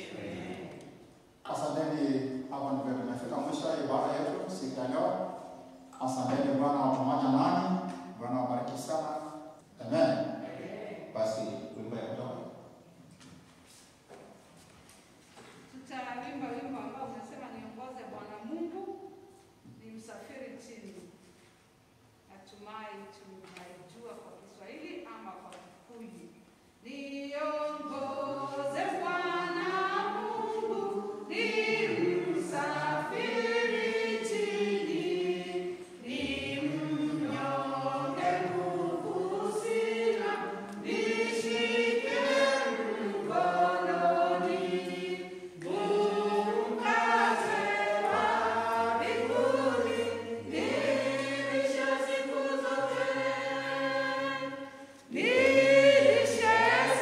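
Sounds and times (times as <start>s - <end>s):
choir singing a hymn: 0.0s - 12.6s, 26.9s - 57.0s.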